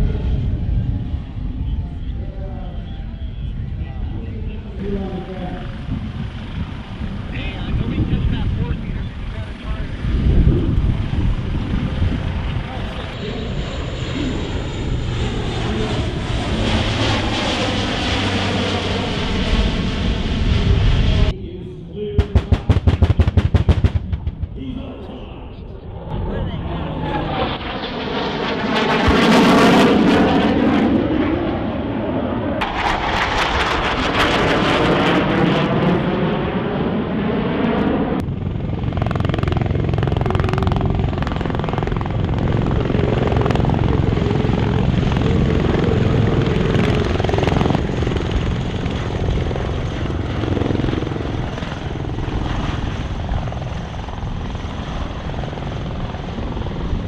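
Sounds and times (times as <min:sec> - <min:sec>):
loud aircraft roar: 0:00.0 - 0:57.0
rotor aircraft droning overhead: 0:00.0 - 0:57.0
low explosion thump: 0:22.2 - 0:24.8.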